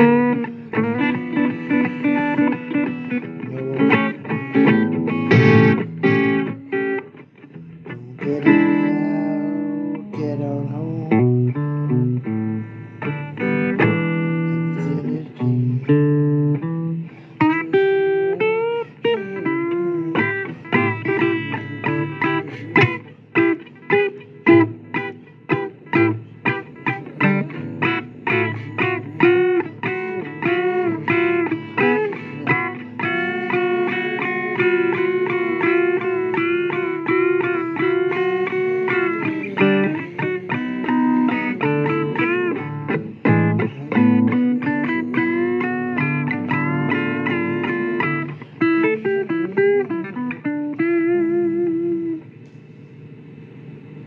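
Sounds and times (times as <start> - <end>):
blues electric guitar playing: 0.0 - 52.5.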